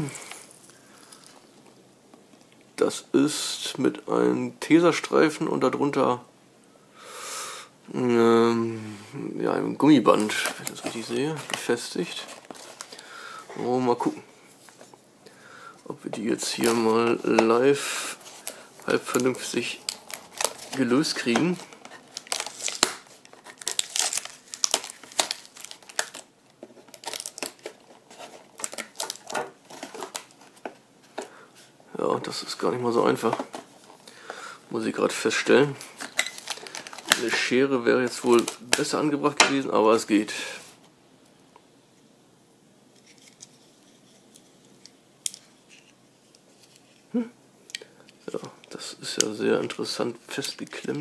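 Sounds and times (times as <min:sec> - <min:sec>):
plastic packaging crinkling: 0:10.0 - 0:13.1, 0:16.3 - 0:31.4, 0:35.1 - 0:39.0.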